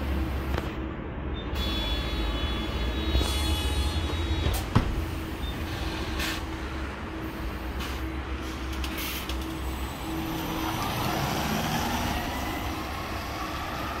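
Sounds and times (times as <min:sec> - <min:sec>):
tyre and road noise: 0:00.0 - 0:14.0
air brake hisses: 0:05.8 - 0:06.5.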